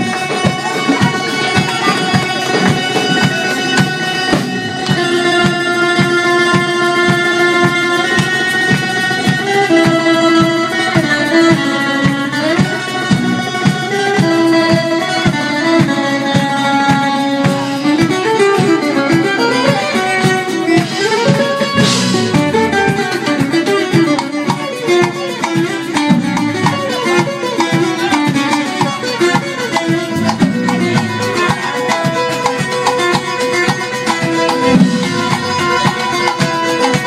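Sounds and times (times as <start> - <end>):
steady percussion: 0.0 - 37.0
strummed acoustic guitar: 0.0 - 37.0
sustained melody notes: 17.2 - 36.9.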